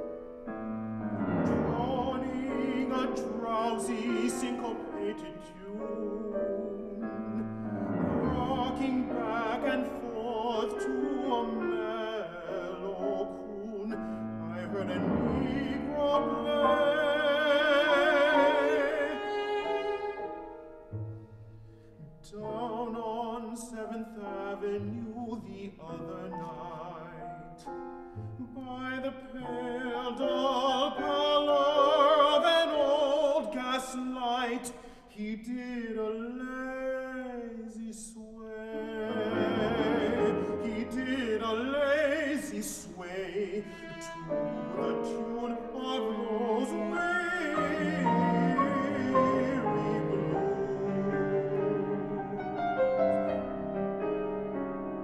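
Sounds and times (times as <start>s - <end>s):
cello melody with vibrato: 0.0s - 21.5s, 38.7s - 42.4s, 43.1s - 55.0s
sustained piano chords: 0.0s - 22.9s, 43.7s - 55.0s.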